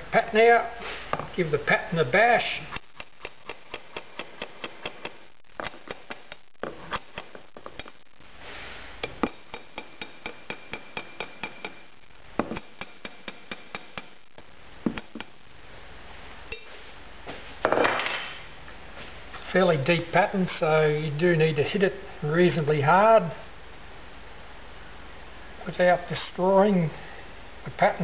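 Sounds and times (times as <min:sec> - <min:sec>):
metal bar tapping a spike: 0:09.0 - 0:11.8.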